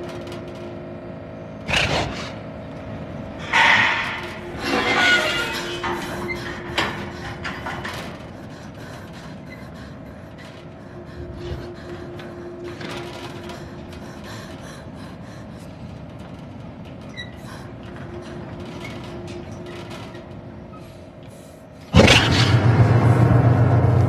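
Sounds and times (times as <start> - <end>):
heavy low rumble: 21.9 - 24.0
loud jump-scare hit: 22.0 - 24.0.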